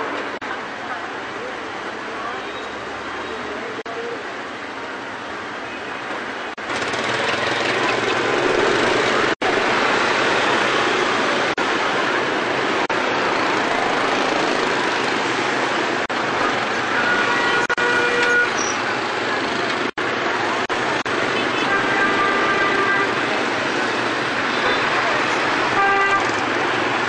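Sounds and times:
dense city traffic: 0:00.0 - 0:27.0.

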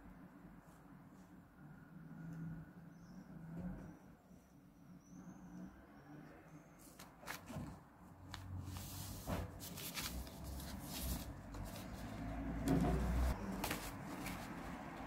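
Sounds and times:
paper rustling: 0:06.8 - 0:15.0.

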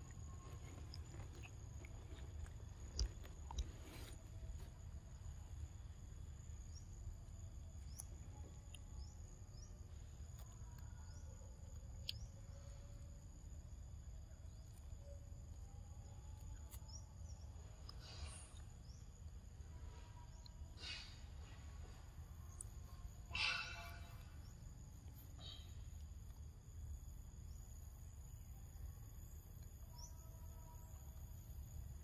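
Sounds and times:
bird chirps: 0:20.3 - 0:25.9
high-pitched insect drone: 0:22.0 - 0:25.8.

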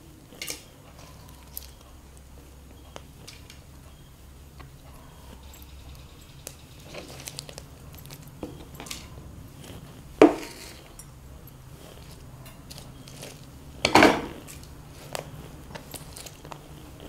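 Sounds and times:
prawns clattering into clay pot: 0:06.3 - 0:11.2, 0:11.8 - 0:16.6.

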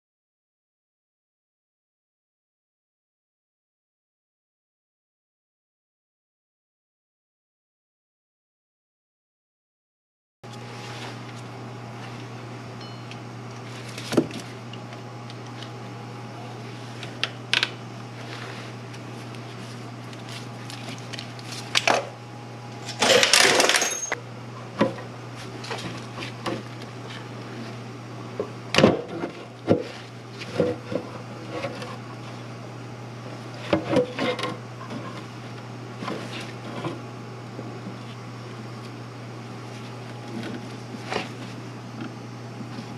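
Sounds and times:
steady low hum: 0:10.5 - 0:42.9
tools clinking and knocking: 0:23.0 - 0:24.2.

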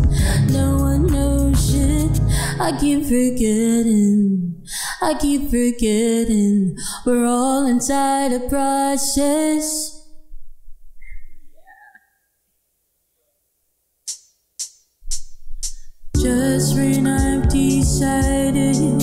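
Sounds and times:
woman singing: 0:00.0 - 0:10.0, 0:16.2 - 0:19.0
keyboard accompaniment: 0:16.2 - 0:19.0.

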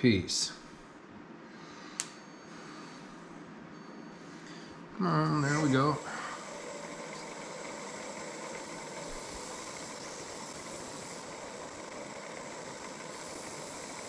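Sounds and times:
wood lathe running: 0:05.3 - 0:14.0.

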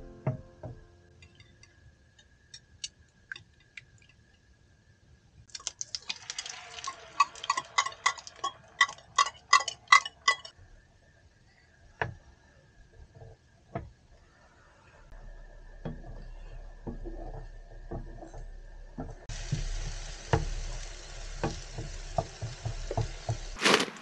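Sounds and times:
whisk clicking against bowl: 0:05.8 - 0:10.5.

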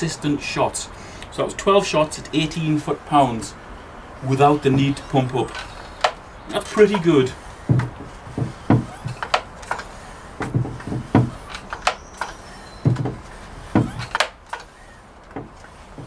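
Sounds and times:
pump lever clacking: 0:07.7 - 0:15.8.

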